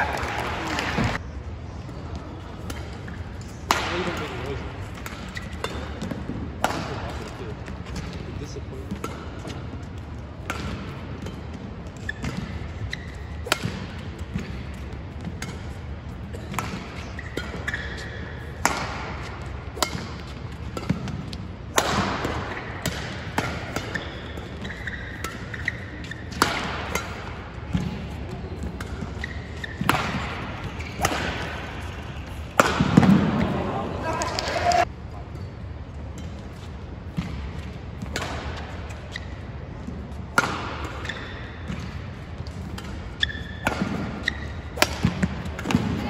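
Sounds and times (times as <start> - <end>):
rackets striking shuttlecock: 2.6 - 8.3, 8.9 - 34.9, 38.0 - 39.3, 40.3 - 46.0
shoe squeaks: 12.0 - 13.5, 16.4 - 18.5, 23.9 - 26.4, 29.1 - 29.9, 43.2 - 43.6.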